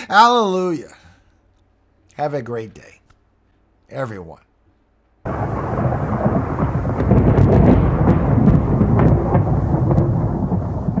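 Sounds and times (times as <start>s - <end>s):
rain: 5.3s - 11.0s
sharp thunder cracks: 5.3s - 11.0s
thunder rumbling: 5.3s - 11.0s.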